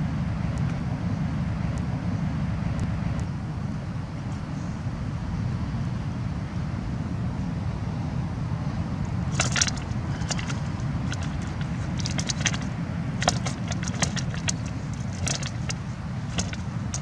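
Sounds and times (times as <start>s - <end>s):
wind on microphone: 0.0s - 17.0s
net sinkers clinking on cobbles: 9.3s - 17.0s.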